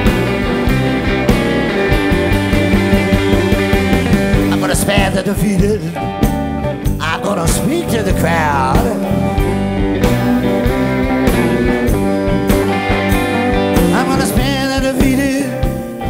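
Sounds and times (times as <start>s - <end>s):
lead guitar sliding and bending notes: 0.0s - 16.0s
live blues-rock band playing: 0.0s - 16.0s.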